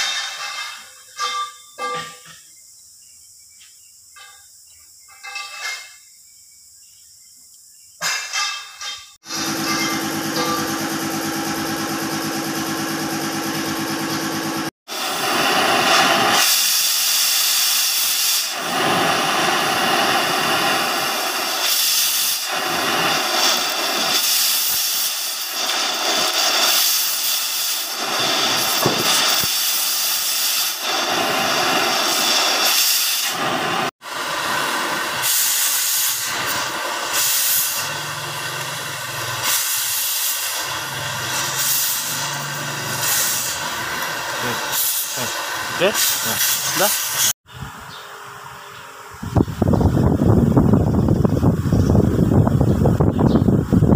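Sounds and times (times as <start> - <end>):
torch flame hissing: 9.2 - 47.4.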